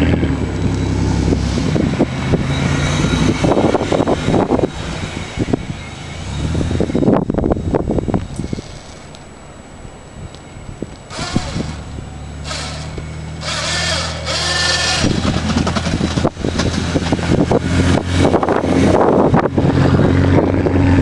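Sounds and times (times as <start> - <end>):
rushing noise: 0.0 - 10.1
car engine working under load: 0.0 - 21.0.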